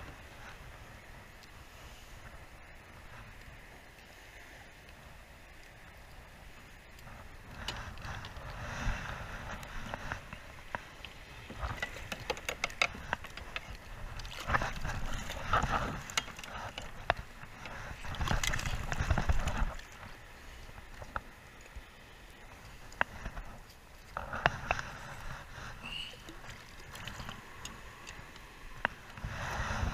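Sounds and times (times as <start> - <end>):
small handling clicks and knocks: 9.8 - 20.1.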